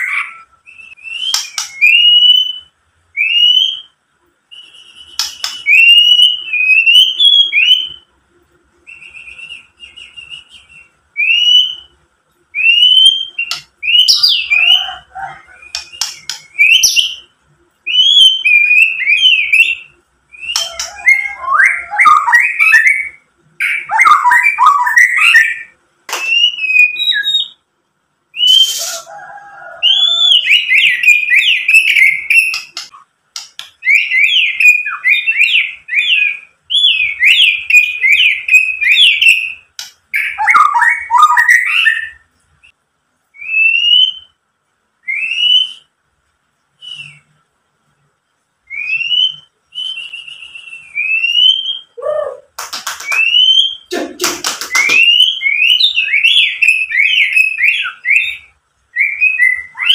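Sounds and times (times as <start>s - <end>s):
bird singing whistled notes: 0.0s - 8.1s, 8.8s - 11.9s, 12.6s - 15.0s, 15.6s - 17.3s, 17.9s - 27.6s, 29.9s - 32.8s, 33.8s - 42.8s, 43.4s - 44.4s, 45.0s - 46.0s, 46.8s - 47.4s, 48.7s - 52.4s, 53.1s - 53.9s, 54.7s - 59.9s
bird harsh rasp: 28.5s - 29.1s.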